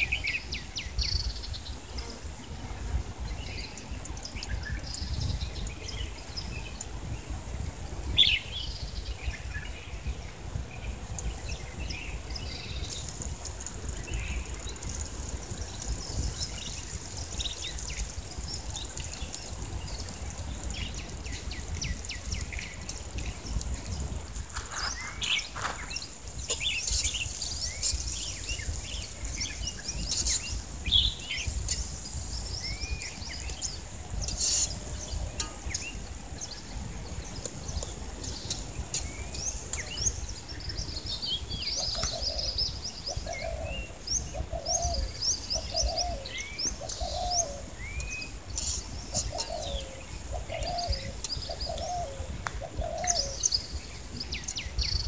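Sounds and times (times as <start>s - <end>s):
birds chirping: 11.1s - 55.0s.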